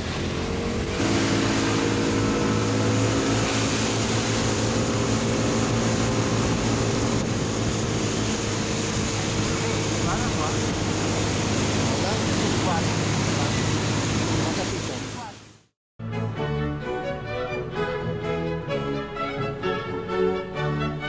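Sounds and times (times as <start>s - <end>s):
scooter engine running: 0.0s - 14.9s
wind and rain hiss: 0.0s - 15.4s.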